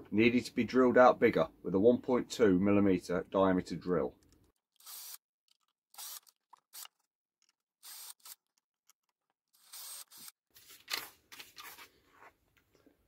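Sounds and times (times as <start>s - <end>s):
drill boring circuit board: 4.7s - 5.2s, 5.9s - 6.9s, 7.8s - 8.4s, 9.5s - 10.4s.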